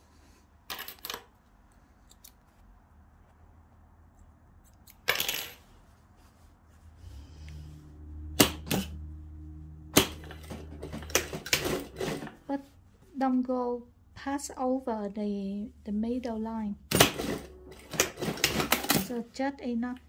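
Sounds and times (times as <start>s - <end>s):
sewing machine humming: 9.9s - 12.5s, 16.9s - 19.1s.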